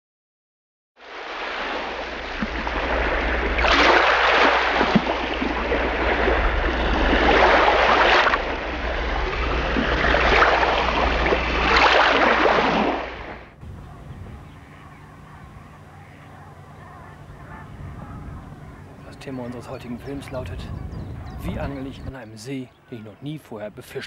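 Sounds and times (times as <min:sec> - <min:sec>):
waves washing in: 0:01.0 - 0:13.8
steady low rumble: 0:08.4 - 0:11.7, 0:13.1 - 0:21.9.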